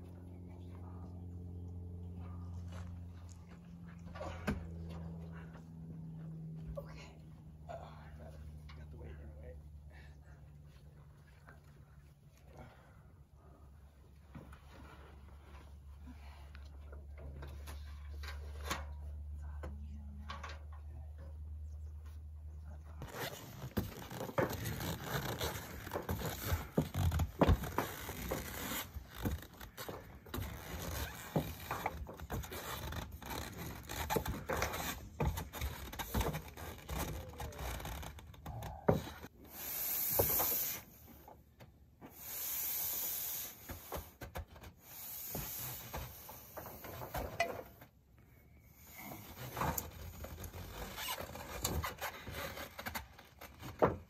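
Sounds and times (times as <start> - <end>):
rope rubbing on metal panels: 23.0 - 41.3, 48.7 - 54.0
long hissing scrapes: 39.4 - 41.2, 42.1 - 44.2, 44.8 - 46.9.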